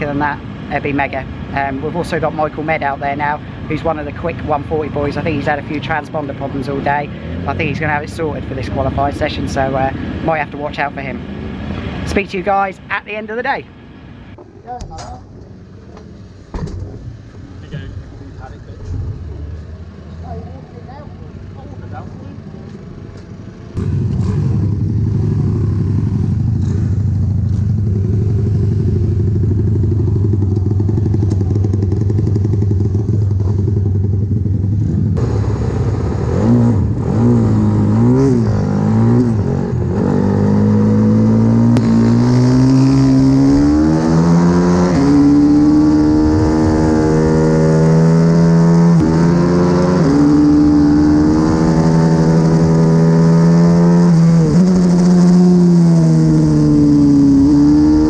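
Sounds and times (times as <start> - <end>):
motorbike engine revving: 23.7 - 58.0.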